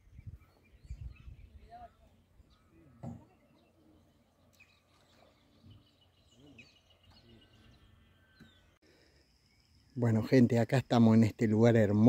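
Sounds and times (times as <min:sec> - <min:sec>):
faint birdsong: 0:00.0 - 0:12.0.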